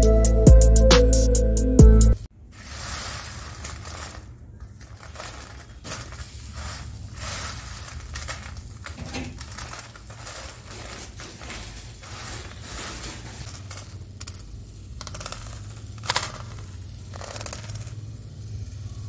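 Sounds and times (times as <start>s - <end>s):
crisp snack rustling and crackling: 2.4s - 19.0s.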